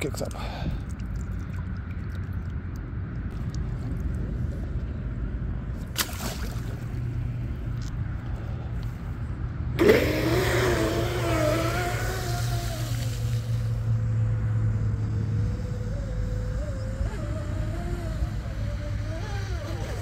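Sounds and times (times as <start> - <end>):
low steady rumble: 0.0 - 20.0
boat splashing into water: 5.9 - 7.1
electric motors whining: 9.8 - 20.0.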